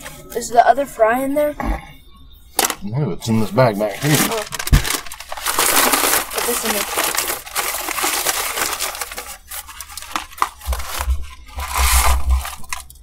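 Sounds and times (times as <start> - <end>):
paper bag crinkling: 2.6 - 2.8, 3.9 - 13.0.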